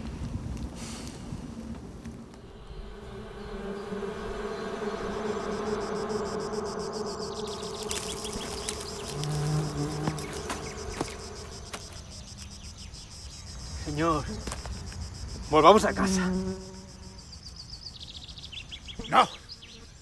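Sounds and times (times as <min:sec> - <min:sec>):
crickets chirping: 0:02.2 - 0:20.0
insect buzzing: 0:02.3 - 0:20.0.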